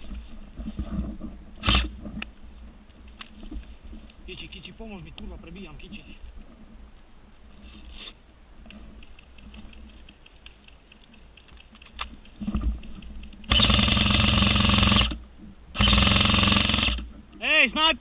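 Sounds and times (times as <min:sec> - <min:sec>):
rustling over dry leaves: 0:00.0 - 0:13.5
airsoft gun full-auto burst: 0:13.5 - 0:15.2, 0:15.8 - 0:17.0.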